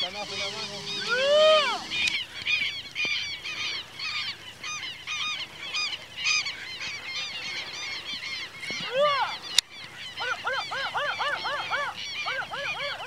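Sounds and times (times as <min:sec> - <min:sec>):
high-pitched animal yelps: 0:10.2 - 0:13.0.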